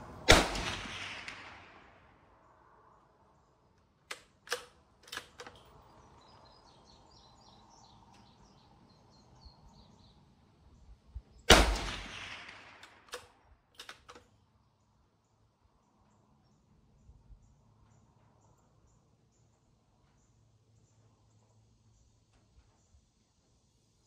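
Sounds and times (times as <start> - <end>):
rifle shot with echo: 0.2 - 2.2, 11.5 - 14.2
rifle handling clicks: 4.0 - 5.8, 11.9 - 14.3.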